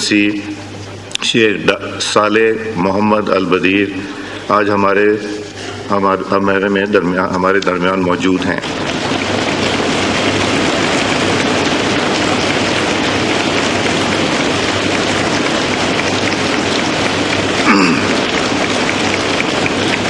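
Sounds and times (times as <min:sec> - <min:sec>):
crowd applauding: 0:07.6 - 0:20.0.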